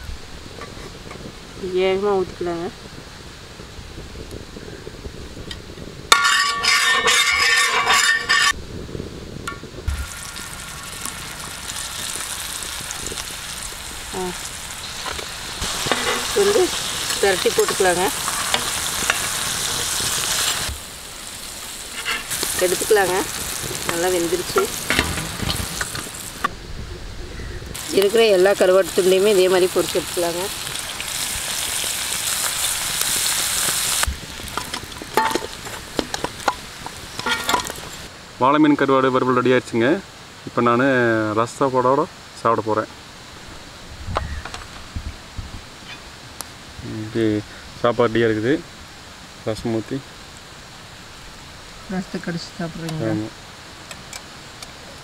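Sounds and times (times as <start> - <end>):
fish sizzling in hot oil: 9.8 - 26.5, 27.7 - 38.1.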